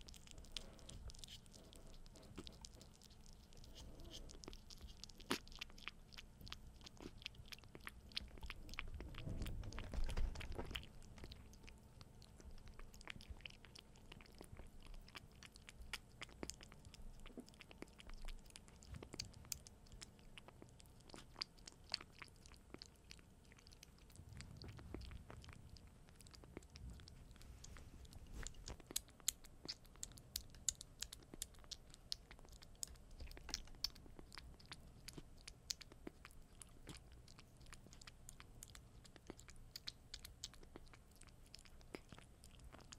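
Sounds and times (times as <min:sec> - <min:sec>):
kitten crunching kibble: 0:00.0 - 0:42.9
low rumble: 0:24.0 - 0:28.9.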